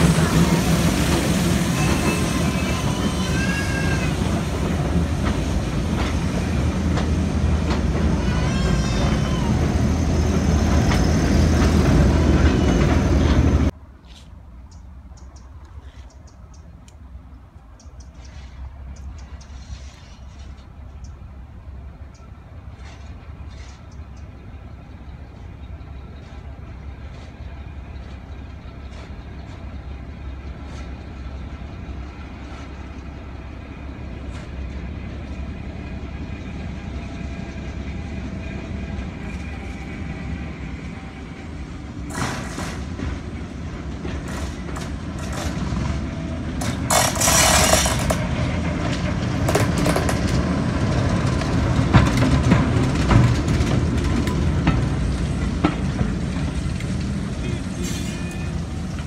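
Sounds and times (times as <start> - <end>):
diesel locomotive engine running: 0.0 - 13.8, 16.0 - 59.0
train wheels clicking over rails: 0.0 - 14.3, 26.1 - 59.0
loud burst of noise: 46.6 - 48.4.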